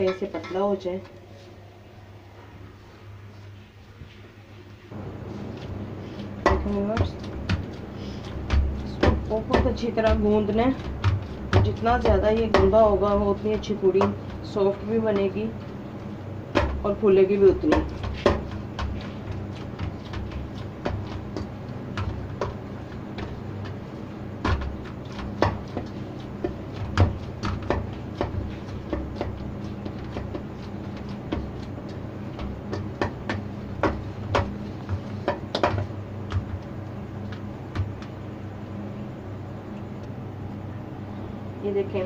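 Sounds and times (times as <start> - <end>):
steady low hum: 0.0 - 42.0
dough slapping in metal bowl: 5.5 - 38.4.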